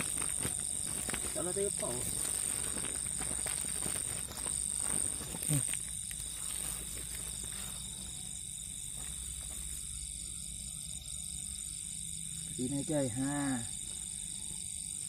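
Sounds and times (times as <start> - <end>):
net rustling: 0.0 - 7.6
insects trilling: 0.0 - 15.0.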